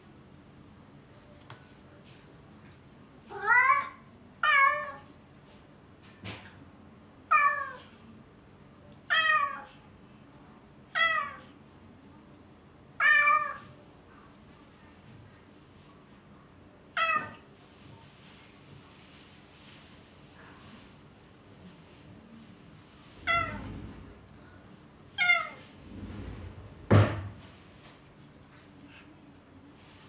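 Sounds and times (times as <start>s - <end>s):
cat meowing: 23.2s - 23.7s, 25.2s - 25.7s.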